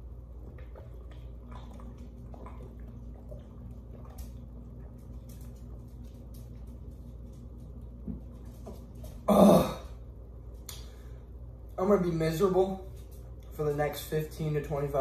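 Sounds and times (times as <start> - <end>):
man swallowing liquid: 0.0 - 4.7
steady low hum: 0.0 - 15.0.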